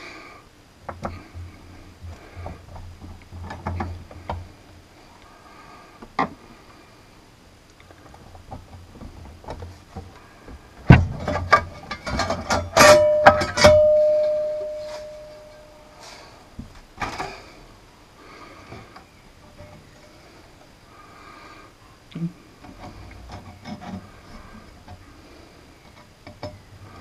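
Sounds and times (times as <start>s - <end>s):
metal clatter: 10.9s - 15.7s
sheet metal ringing: 12.7s - 16.0s.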